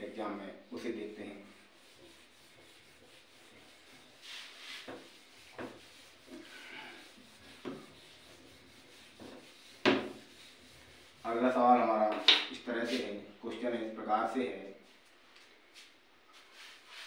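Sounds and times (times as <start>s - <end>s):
duster scrubbing whiteboard: 0.8s - 13.1s, 15.8s - 17.0s.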